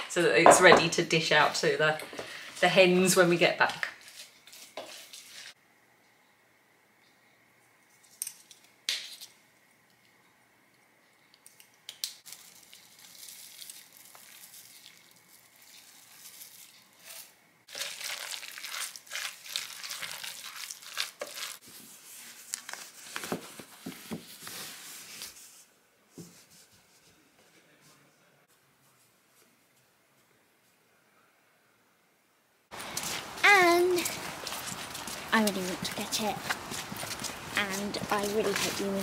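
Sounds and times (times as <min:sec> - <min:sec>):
wet mash squelching when stirred: 0:12.2 - 0:21.7, 0:32.8 - 0:39.0.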